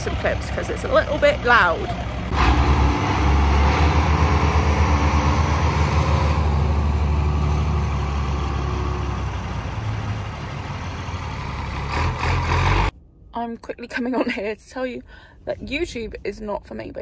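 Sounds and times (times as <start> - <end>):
diesel tractor engine throbbing: 0.0 - 12.9.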